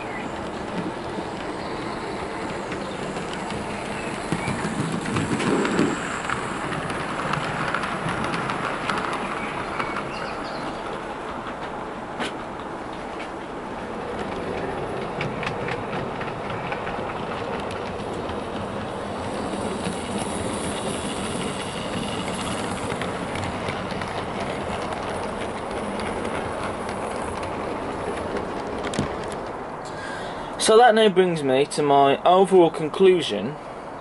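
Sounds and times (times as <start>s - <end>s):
wheels clicking over rail joints: 0.0s - 31.0s.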